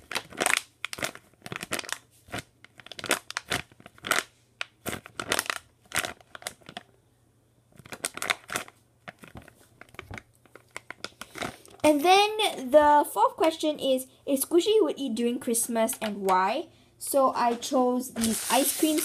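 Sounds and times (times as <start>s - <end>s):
plastic bag crinkling: 0.0s - 6.9s, 7.7s - 12.0s, 18.2s - 19.0s.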